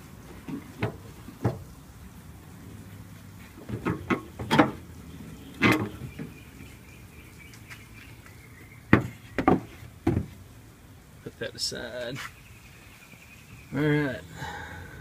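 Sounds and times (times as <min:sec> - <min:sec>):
metal frame knocks and clanks: 0:03.6 - 0:04.8.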